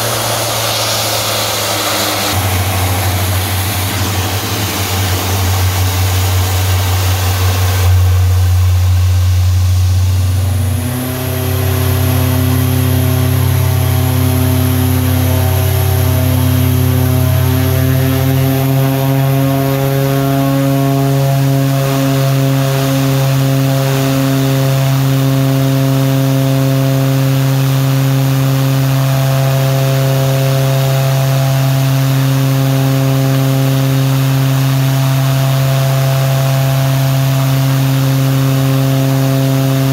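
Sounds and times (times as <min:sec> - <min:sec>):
high engine whine: 0:00.0 - 0:39.9
turboprop engine running: 0:00.0 - 0:39.9.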